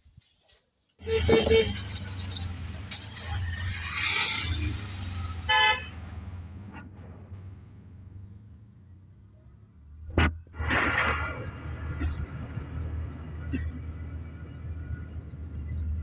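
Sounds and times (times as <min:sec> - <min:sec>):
horn toots: 0:01.0 - 0:02.4, 0:03.8 - 0:06.8
auto-rickshaw engine running: 0:01.0 - 0:16.0.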